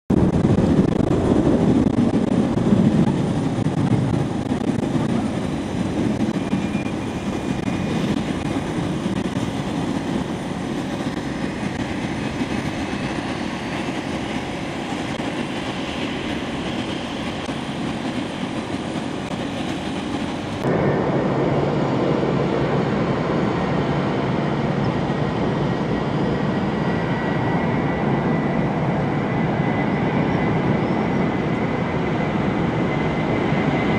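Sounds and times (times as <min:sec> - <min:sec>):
jet engine rumble: 0:00.1 - 0:33.9
turbofan engines running: 0:00.1 - 0:33.9.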